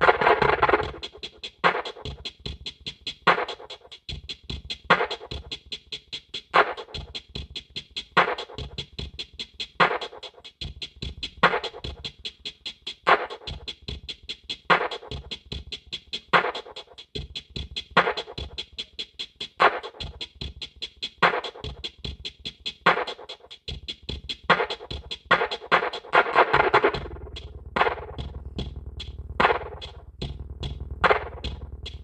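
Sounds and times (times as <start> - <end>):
electronic music with deep bass: 0.0 - 1.4, 24.8 - 32.0.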